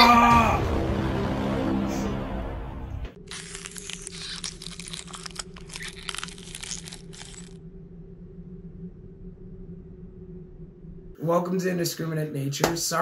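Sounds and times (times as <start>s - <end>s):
steady low hum: 3.1s - 13.0s
dense crackling and crunching: 3.2s - 7.6s.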